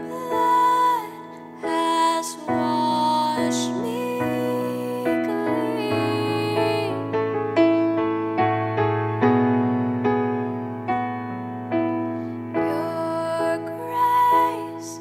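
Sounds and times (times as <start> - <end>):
slow soft piano music: 0.0 - 15.0.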